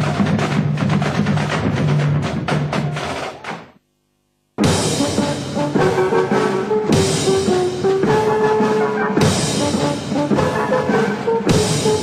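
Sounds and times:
drums: 0.0s - 3.9s, 4.6s - 12.0s
percussion crash: 4.6s - 12.0s
brass holding long notes: 4.9s - 12.0s.

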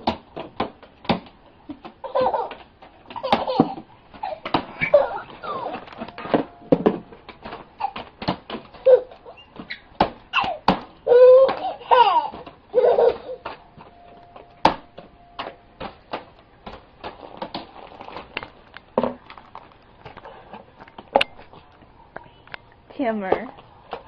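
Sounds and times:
toddler giggling and laughing: 2.0s - 5.8s, 7.8s - 8.1s, 8.7s - 9.5s, 10.3s - 13.6s.

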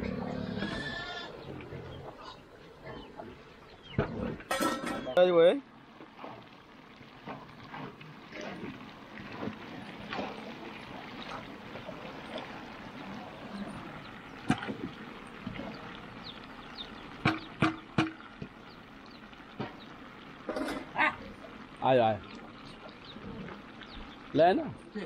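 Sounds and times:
liquid bubbling: 0.0s - 25.0s
pork frying in a pan: 2.4s - 25.0s
metal utensils knocking on pan: 17.2s - 18.2s.

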